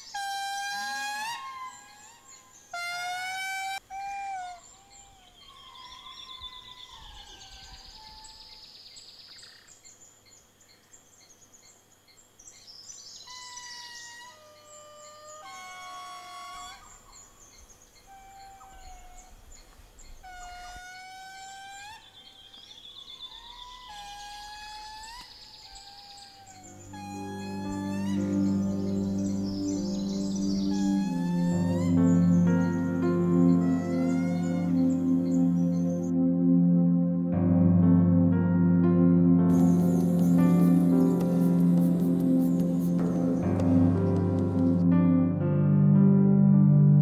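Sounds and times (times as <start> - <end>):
lemurs wailing calls: 0.0 - 8.4, 13.3 - 17.3, 18.0 - 19.5, 20.1 - 36.0
faint bird chirps and whistles: 12.6 - 36.1.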